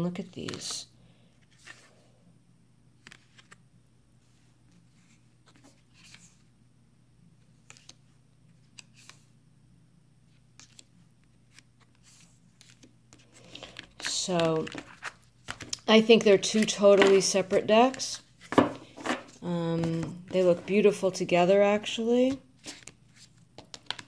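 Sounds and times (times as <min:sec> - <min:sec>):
low steady hum: 0:00.0 - 0:24.0
cards tapped on wooden table: 0:18.5 - 0:19.2.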